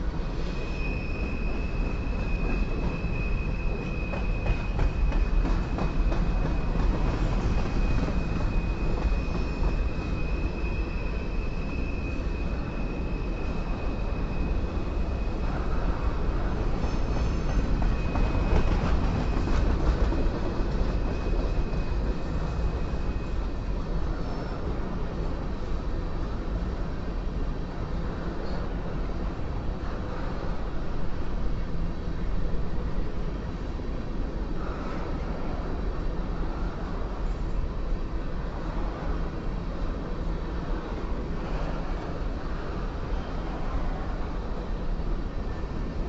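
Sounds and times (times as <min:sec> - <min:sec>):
freight train rumbling past: 0:00.0 - 0:46.0
high-pitched wheel squeal: 0:00.4 - 0:04.8.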